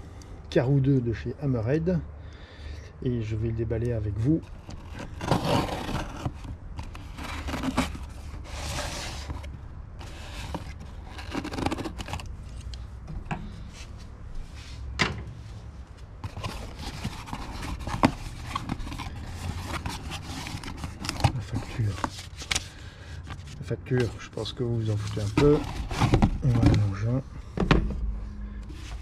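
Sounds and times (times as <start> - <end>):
cardboard rubbing and scraping: 4.2 - 12.4, 16.2 - 27.2, 28.7 - 29.0.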